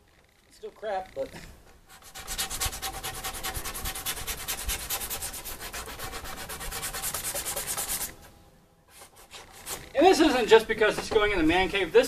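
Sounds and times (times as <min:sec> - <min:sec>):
sandpaper sanding wood: 0:01.9 - 0:08.2.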